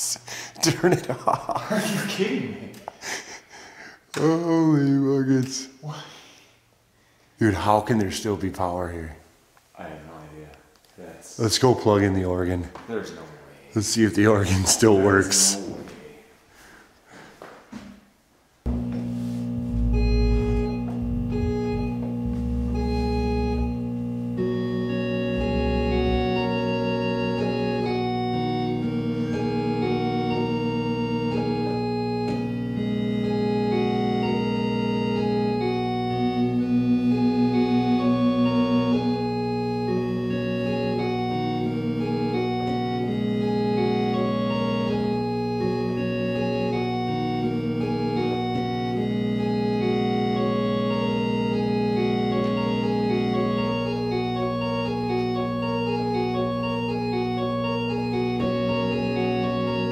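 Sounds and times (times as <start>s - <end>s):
electric organ chords: 13.8s - 15.8s, 18.6s - 59.9s
deep bass pedal notes: 18.7s - 59.9s.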